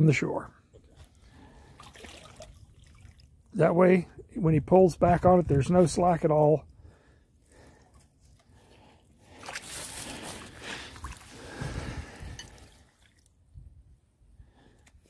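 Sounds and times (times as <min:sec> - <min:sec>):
water sloshing: 0:00.7 - 0:03.6, 0:07.5 - 0:13.4
mud squelching: 0:00.8 - 0:03.6, 0:07.4 - 0:13.4.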